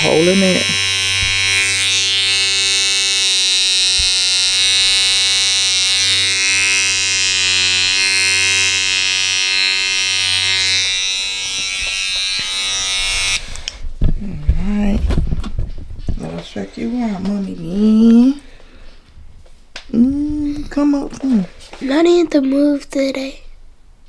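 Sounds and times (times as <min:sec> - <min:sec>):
electric hair trimmer buzzing: 0:00.0 - 0:13.8.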